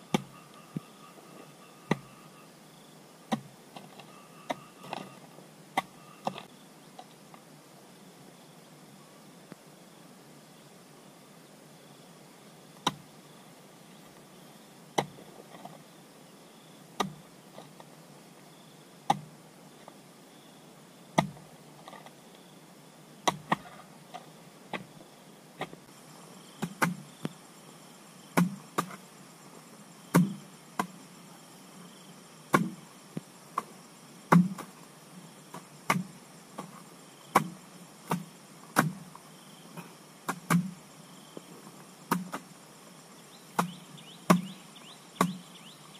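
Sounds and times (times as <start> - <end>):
hand tool chopping: 28.4 - 29.0, 30.1 - 30.9, 32.5 - 32.8, 34.3 - 34.7, 35.5 - 39.0, 39.8 - 40.7, 42.1 - 42.4, 43.6 - 44.5, 45.2 - 45.4.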